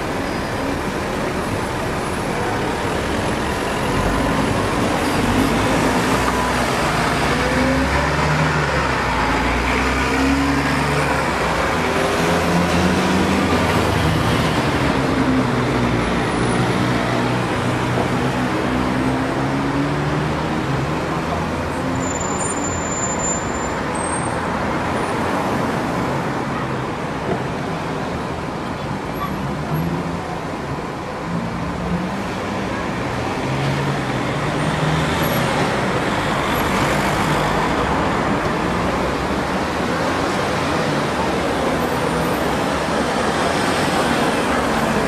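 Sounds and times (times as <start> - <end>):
road traffic noise: 0.0 - 45.0.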